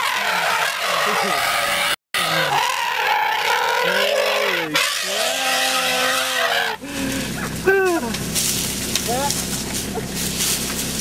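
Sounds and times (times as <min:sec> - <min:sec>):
vehicle engine: 0:00.0 - 0:11.0
road and wind noise hiss: 0:06.8 - 0:11.0.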